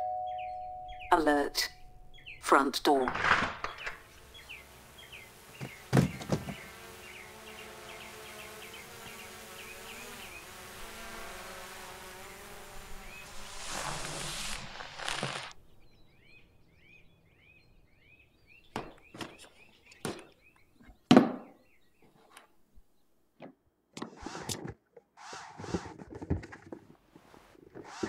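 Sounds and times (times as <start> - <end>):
drone buzzing: 3.2 - 15.6
small bird chirping faintly: 3.7 - 21.0
cardboard box thudding on wooden table: 5.6 - 6.7
cardboard scuffing and rustling: 5.6 - 6.7, 13.8 - 15.5, 25.3 - 28.0.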